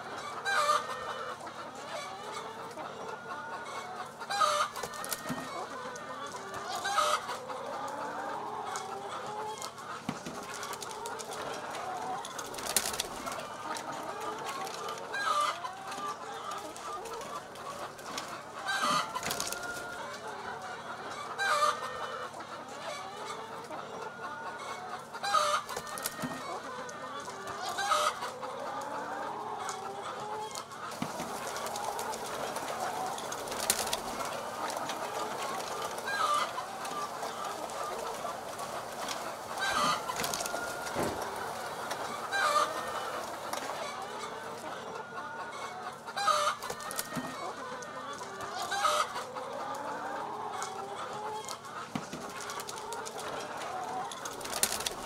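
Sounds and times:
hens clucking: 0.0s - 55.0s
loud hen call: 18.6s - 51.7s.

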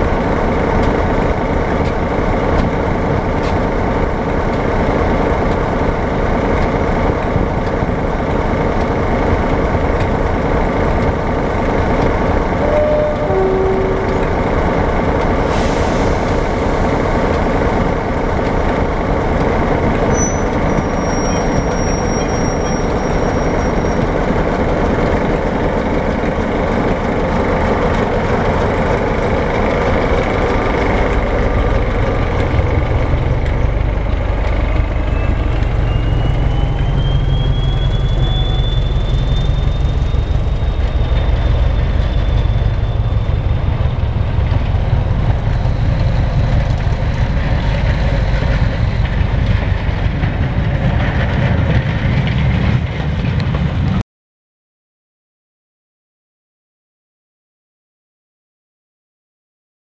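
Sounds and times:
diesel locomotive rumbling: 0.0s - 54.0s
high rising whistle: 12.6s - 14.3s, 34.6s - 44.4s.

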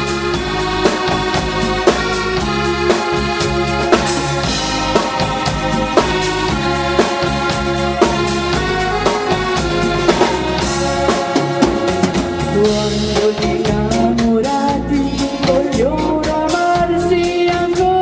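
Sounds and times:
drum kit beat: 0.0s - 18.0s
keyboards: 0.0s - 18.0s
person singing through microphone: 12.2s - 18.0s.

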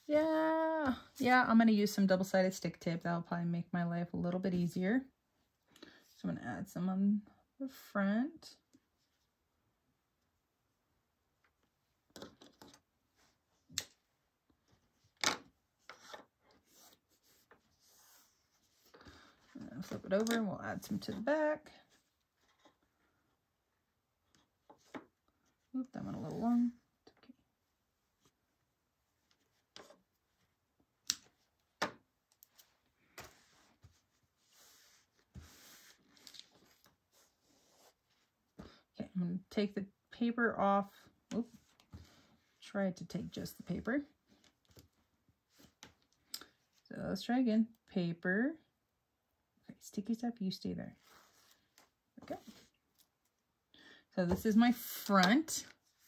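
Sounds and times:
tape rustling and rubbing on fabric: 15.7s - 20.2s, 32.3s - 38.4s, 51.0s - 53.4s.

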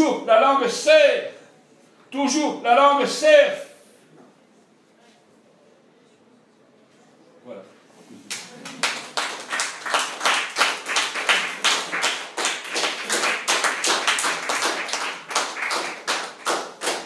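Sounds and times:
audience applauding: 8.3s - 17.0s.

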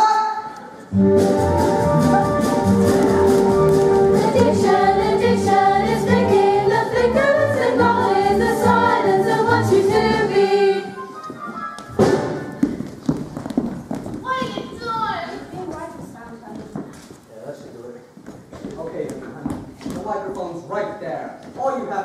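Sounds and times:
group singing over bass beat: 3.8s - 11.0s.

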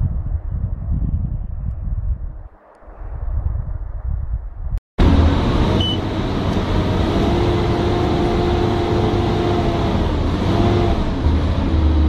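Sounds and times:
heavy machine engine running: 5.0s - 12.0s
steady whine: 5.0s - 12.0s
short high beep: 5.8s - 6.0s.

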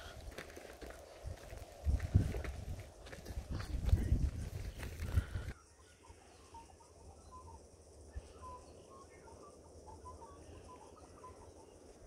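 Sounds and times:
faint bird chirps: 4.6s - 12.0s.

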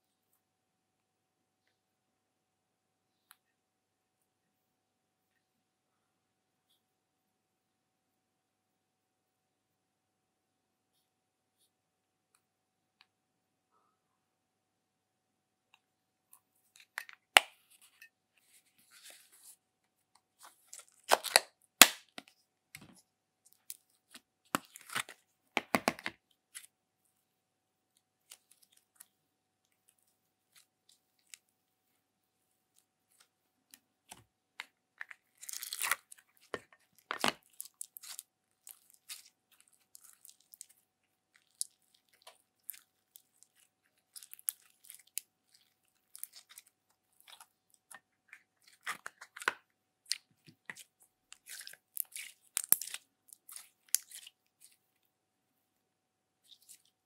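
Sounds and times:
slime crackling and popping: 20.7s - 22.2s, 35.1s - 40.7s, 41.3s - 48.0s, 48.7s - 54.7s.

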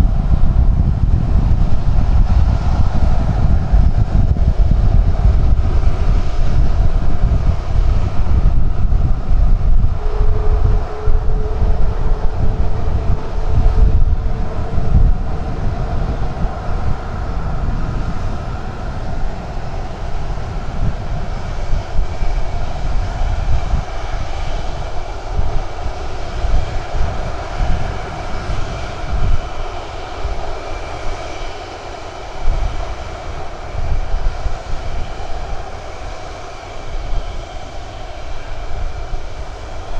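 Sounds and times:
jet engine whine: 0.0s - 39.9s
low engine rumble: 0.0s - 39.9s.

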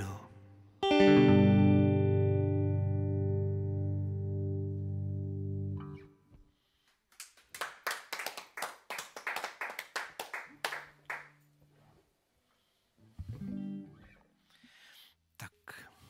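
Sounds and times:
electric guitar chord ringing: 0.4s - 6.2s
small audience clapping: 6.8s - 11.5s.

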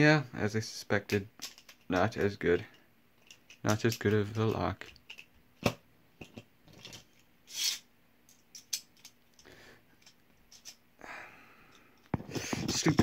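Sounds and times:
plastic parts clicking: 1.1s - 10.8s.

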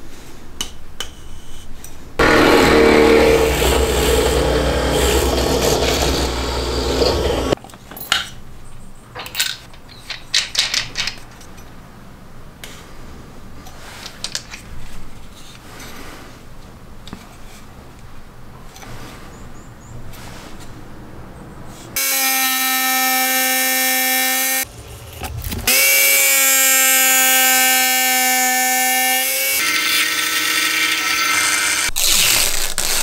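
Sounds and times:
drill press drilling wood: 2.2s - 7.6s, 29.5s - 31.9s.

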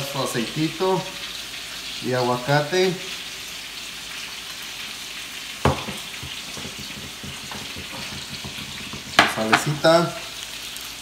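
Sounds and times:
steak sizzling in a pan: 0.0s - 11.0s
glass bottle knocking on wood: 5.6s - 9.8s.

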